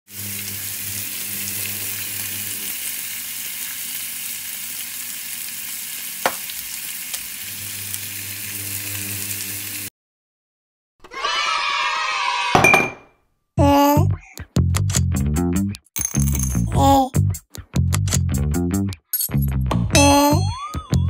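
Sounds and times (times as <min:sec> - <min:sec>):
meat sizzling in a frying pan: 0:00.1 - 0:09.9.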